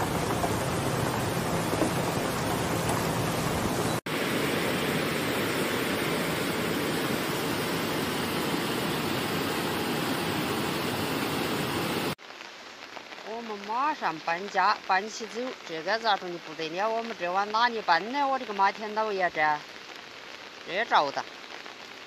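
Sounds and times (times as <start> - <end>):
river in flood rushing: 0.0 - 12.2
rain: 0.0 - 22.0.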